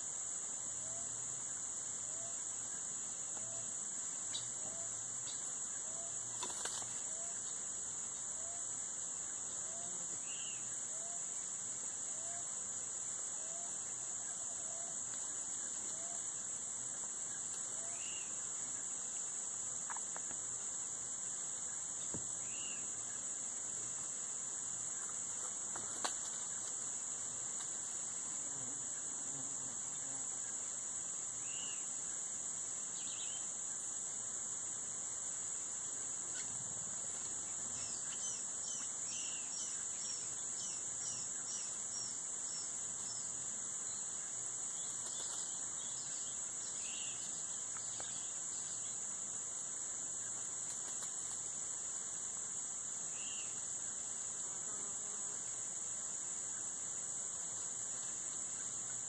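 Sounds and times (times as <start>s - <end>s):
shrill insect chorus: 0.0s - 59.0s
faint bird chirps: 9.2s - 11.3s, 17.2s - 19.2s, 21.6s - 23.2s, 31.4s - 32.2s, 32.9s - 33.8s, 53.1s - 53.6s.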